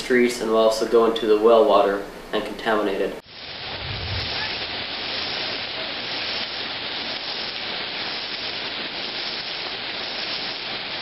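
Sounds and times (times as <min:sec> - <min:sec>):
heavy rain pouring on road: 0:03.2 - 0:11.0.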